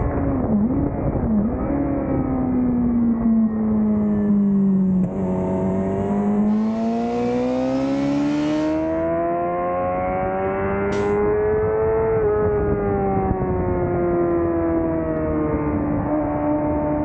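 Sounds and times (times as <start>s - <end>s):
wind rush on microphone: 0.0s - 3.2s, 10.9s - 17.0s.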